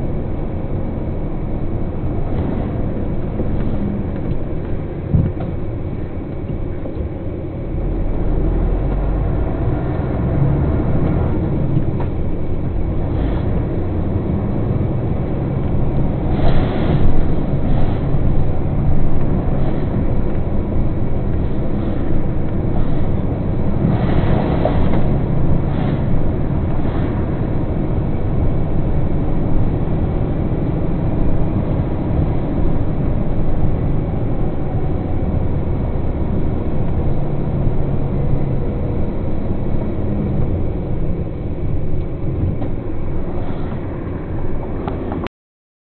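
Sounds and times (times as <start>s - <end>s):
truck engine and road rumble: 0.0s - 45.3s.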